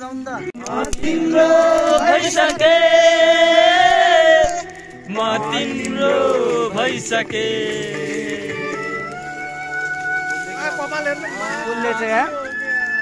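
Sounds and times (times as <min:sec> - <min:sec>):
group of young men singing: 0:00.3 - 0:09.6.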